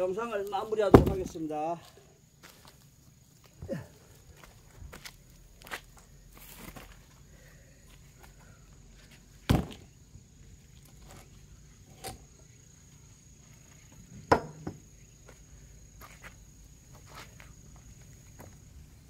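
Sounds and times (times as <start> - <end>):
wooden thuds and knocks: 0.8 - 1.4, 9.5 - 9.9, 14.2 - 14.8.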